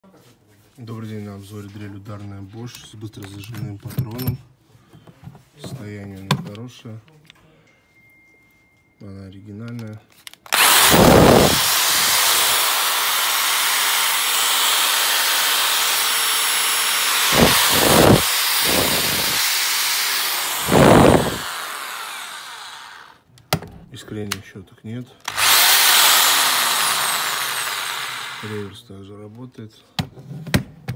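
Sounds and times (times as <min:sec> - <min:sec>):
drill motor whining: 0:10.5 - 0:23.2, 0:25.3 - 0:28.7.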